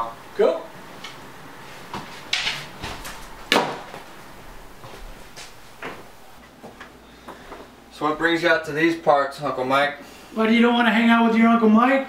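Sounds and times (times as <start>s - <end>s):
household knocks and bumps: 1.9s - 4.1s.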